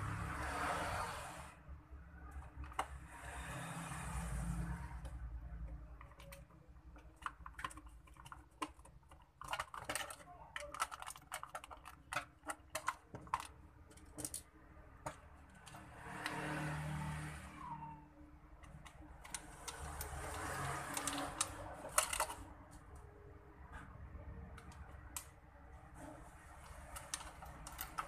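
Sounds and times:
plastic parts clicking together: 0:05.0 - 0:16.4, 0:18.6 - 0:23.0, 0:26.6 - 0:28.0.

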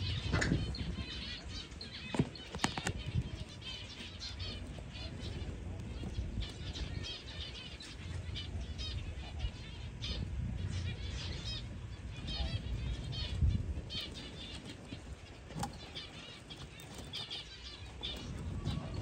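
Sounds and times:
small birds chirping: 0:00.0 - 0:19.0
rustling handling noise: 0:14.0 - 0:19.0.

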